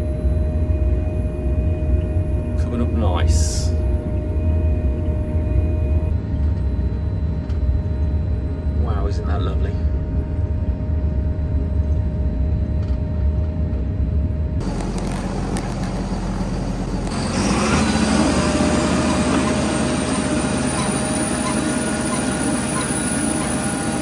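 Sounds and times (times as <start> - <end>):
tractor engine drone in cab: 0.0 - 24.0
potato harvester machinery running: 14.6 - 24.0.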